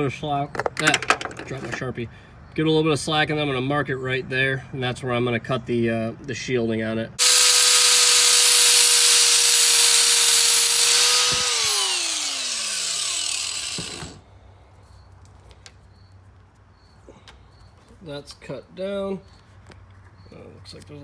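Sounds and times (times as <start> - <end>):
hiss of cutting through cable: 7.2 - 14.0
power cutting wheel whining: 7.2 - 14.2.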